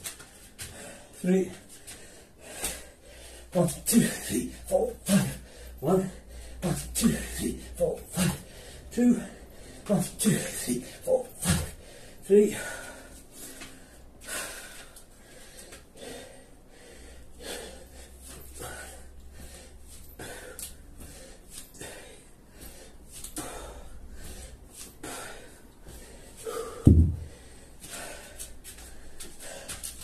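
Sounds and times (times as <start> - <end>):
man breathing hard: 0.1 - 30.0
heavy low thud: 26.8 - 27.4.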